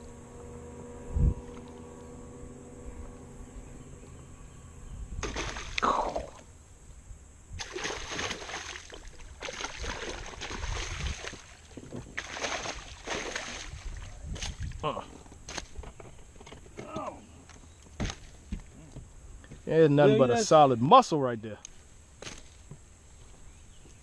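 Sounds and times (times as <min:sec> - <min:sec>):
fish splashing in water: 0:05.2 - 0:06.4, 0:07.6 - 0:14.6.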